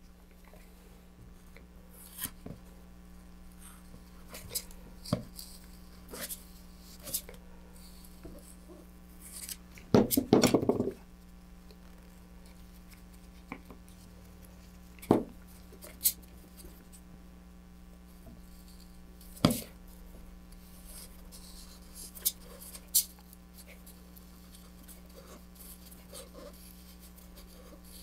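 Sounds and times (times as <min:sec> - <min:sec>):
faint steady hum: 0:00.0 - 0:28.0
clatter and knocks on workbench: 0:10.0 - 0:11.0.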